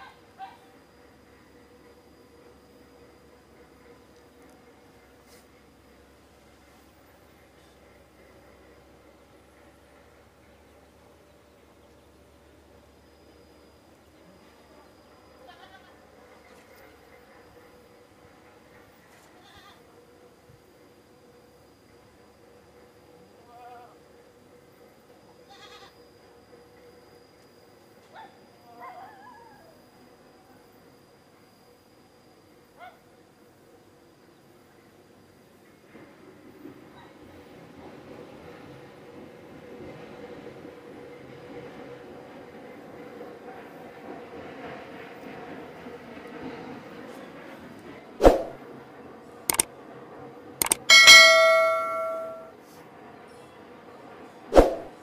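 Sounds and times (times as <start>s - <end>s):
click: 50.6s - 50.9s
bright bell ding: 50.6s - 52.5s.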